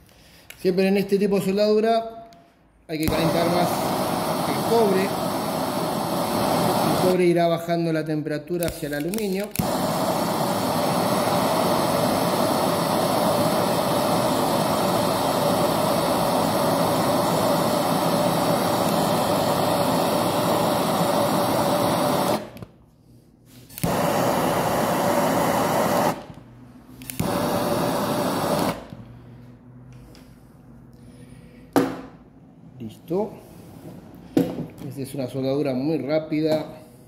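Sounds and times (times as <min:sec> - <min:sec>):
gas torch flame hissing: 0:02.9 - 0:07.5, 0:08.6 - 0:22.8, 0:23.5 - 0:29.4.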